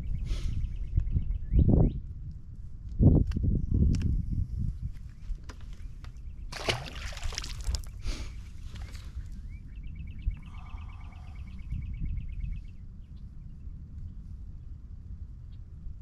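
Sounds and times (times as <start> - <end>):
wind rumble on microphone: 0.0 - 16.0
fish splashing into water: 6.5 - 7.9.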